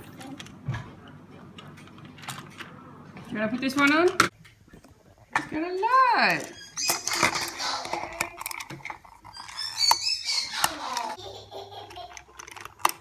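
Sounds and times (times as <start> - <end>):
high squeaks: 6.4 - 11.2
plastic toy clicks and knocks: 6.8 - 11.2, 11.8 - 13.0.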